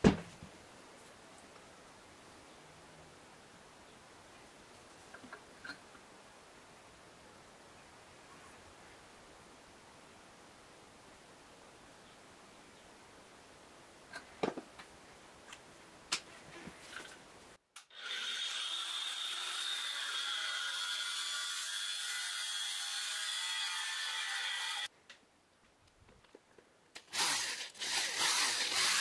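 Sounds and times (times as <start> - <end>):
angle grinder cutting plastic pipe: 17.8 - 24.9, 27.0 - 29.0.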